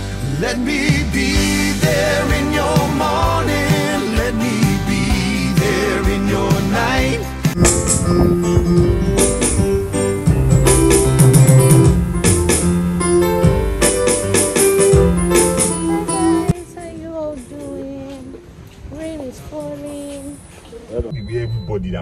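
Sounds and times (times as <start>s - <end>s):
upbeat background music: 0.0s - 16.7s.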